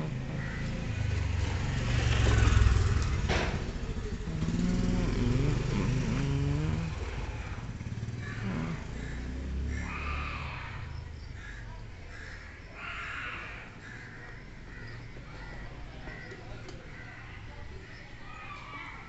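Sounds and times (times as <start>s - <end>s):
vehicle engine running: 0.0s - 12.4s.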